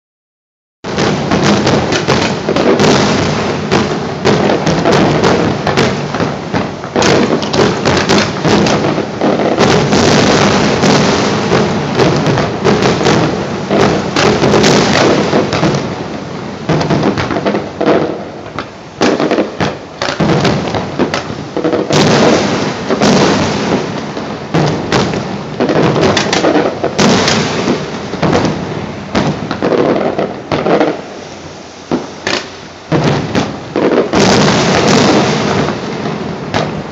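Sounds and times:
fireworks bangs and crackle: 0.8s - 36.9s.

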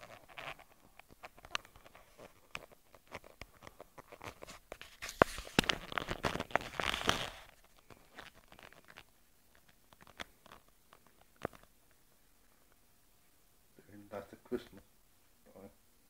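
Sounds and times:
camera handling clicks and rubbing: 0.0s - 10.6s
rustling: 0.0s - 15.5s.

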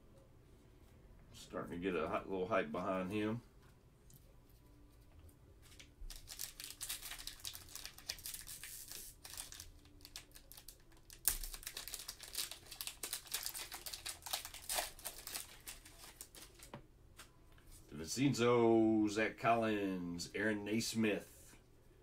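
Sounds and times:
wrapper crinkling: 5.6s - 16.7s
wrapper tearing: 5.6s - 16.7s.

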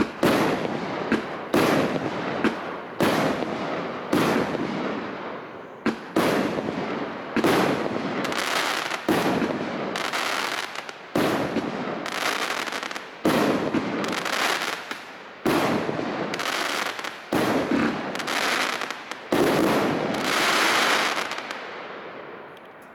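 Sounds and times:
fireworks bangs: 0.0s - 22.4s
hiss and crackle of fireworks bursts: 0.0s - 22.9s.

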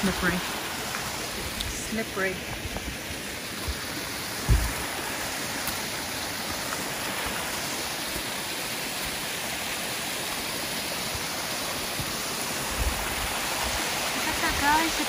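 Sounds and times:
waterfall rushing: 0.0s - 15.0s
brief low thump: 4.4s - 4.8s.

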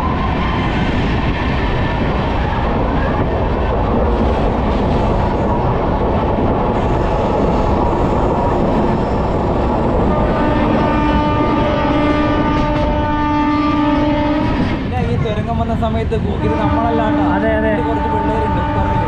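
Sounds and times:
train wheel and track noise: 0.0s - 19.0s
train horn long note: 10.1s - 14.6s, 16.4s - 19.0s.

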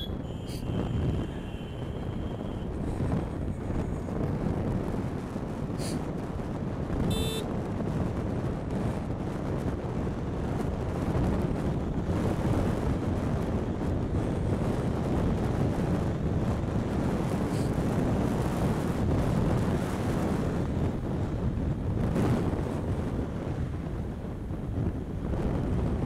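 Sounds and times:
brief high tone: 0.0s - 2.6s
scooter tyre and road noise: 0.0s - 26.0s
wind rushing over microphone: 0.0s - 26.0s.

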